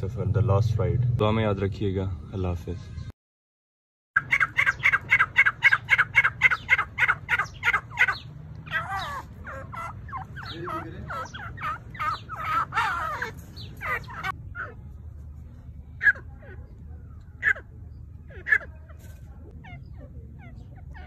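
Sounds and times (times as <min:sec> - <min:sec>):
francolins calling: 0:04.2 - 0:14.9, 0:15.9 - 0:21.0.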